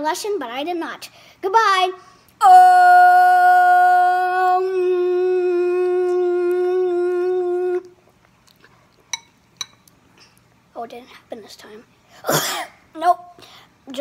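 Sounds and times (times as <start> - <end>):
child holding a long note: 2.4 - 7.9.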